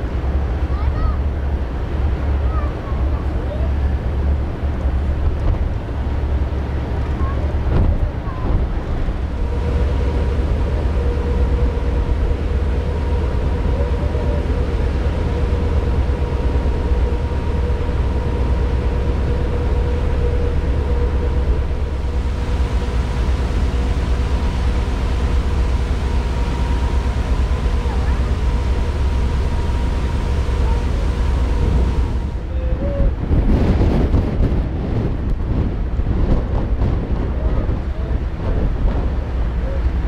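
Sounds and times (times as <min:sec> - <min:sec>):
ship engines rumbling: 0:00.0 - 0:40.0
thin steady hum: 0:09.1 - 0:32.7.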